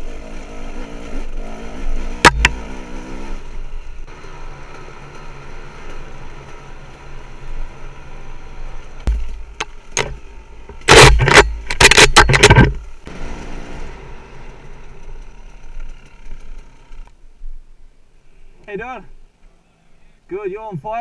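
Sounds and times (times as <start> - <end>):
two-stroke motorcycle engine revving: 0.0 - 9.2
sharp knocks: 2.2 - 2.6, 9.1 - 12.8.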